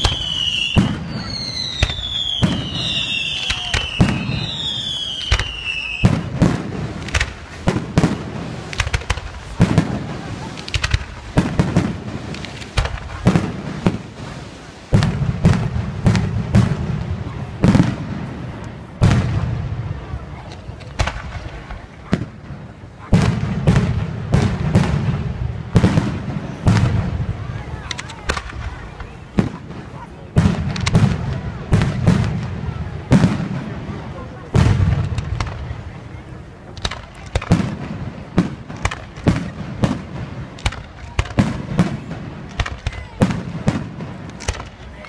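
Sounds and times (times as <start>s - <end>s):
falling firework whistle: 0.0s - 6.3s
fireworks bangs: 0.0s - 45.0s.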